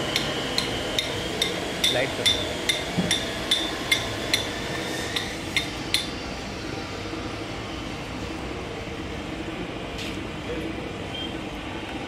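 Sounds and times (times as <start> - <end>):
mixer machine running: 0.0 - 9.6.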